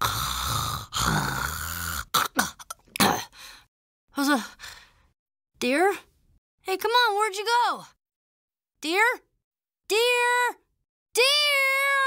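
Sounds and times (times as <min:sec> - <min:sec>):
boy snoring: 0:00.0 - 0:02.6
voiced grunt: 0:00.0 - 0:03.4.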